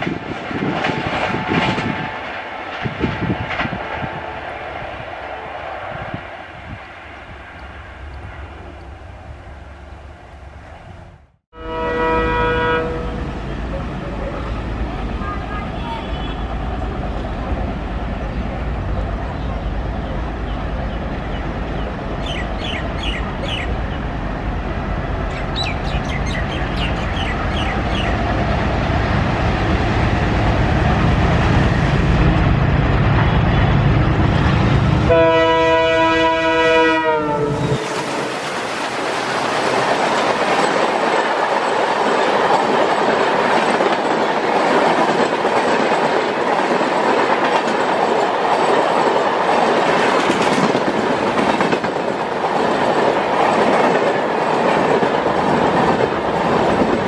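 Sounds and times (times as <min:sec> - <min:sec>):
train engine rumble: 0:00.0 - 0:57.0
locomotive multi-tone horn: 0:11.5 - 0:13.3, 0:35.1 - 0:38.1.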